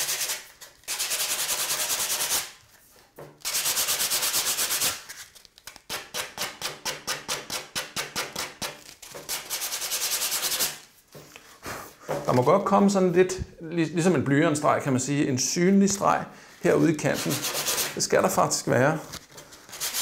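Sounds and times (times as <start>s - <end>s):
sandpaper rubbing on edge: 0.0s - 2.5s, 3.4s - 5.0s, 9.3s - 10.8s, 16.7s - 18.0s, 19.7s - 20.0s.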